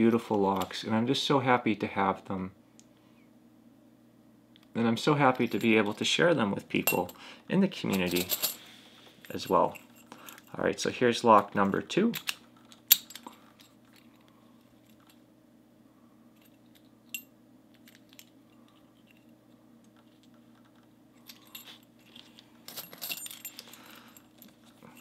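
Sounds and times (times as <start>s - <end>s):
keys jangling and clicking: 7.9s - 8.6s, 19.9s - 25.0s.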